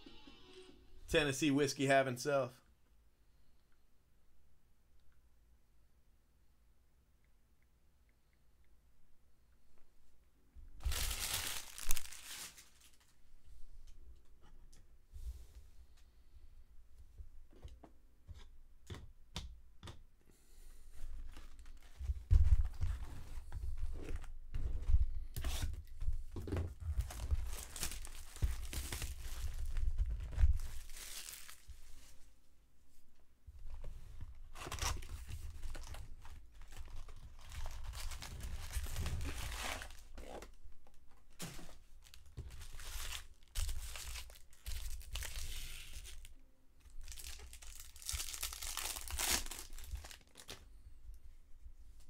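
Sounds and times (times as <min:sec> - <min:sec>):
wrappers tearing and crinkling: 0:10.8 - 0:13.2, 0:27.0 - 0:29.8, 0:30.5 - 0:31.7, 0:34.6 - 0:40.6, 0:42.0 - 0:46.3, 0:47.0 - 0:50.6.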